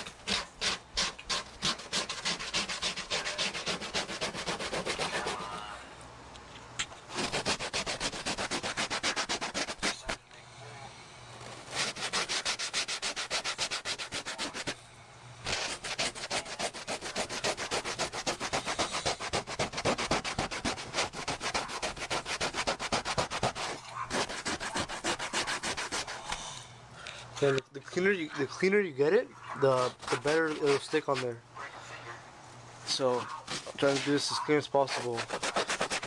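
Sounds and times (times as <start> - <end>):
rapid rubbing strokes on board: 0.0 - 5.7, 7.1 - 10.2, 11.4 - 14.8, 15.4 - 26.5, 29.6 - 31.3, 32.9 - 36.0.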